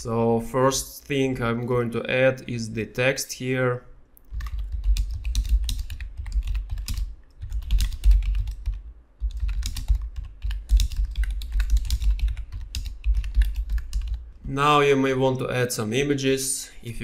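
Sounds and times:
keyboard typing: 4.2s - 14.3s.

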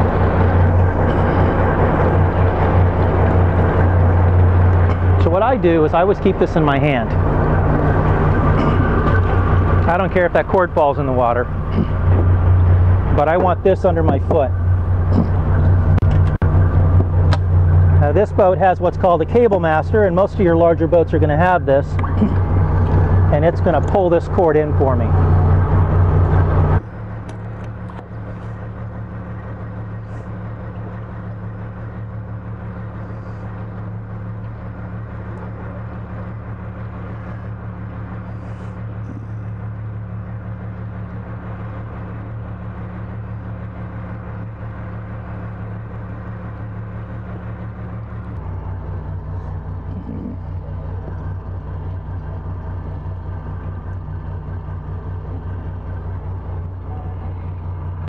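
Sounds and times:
low mechanical hum of machinery: 0.0s - 58.0s.

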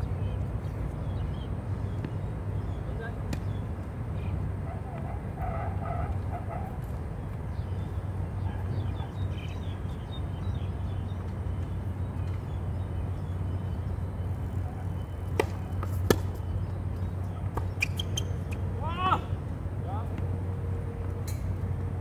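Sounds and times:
tennis ball pops: 15.3s - 16.4s.

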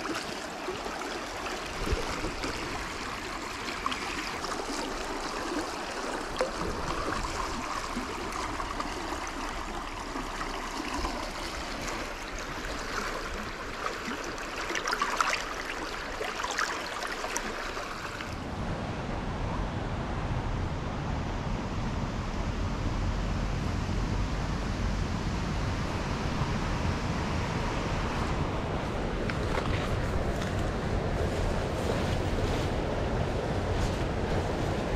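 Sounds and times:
stream water rushing: 0.0s - 18.6s.

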